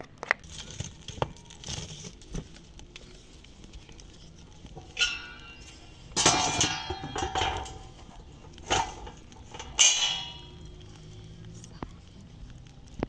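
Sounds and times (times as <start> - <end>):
iron griddle clanking on stand: 4.7 - 11.1.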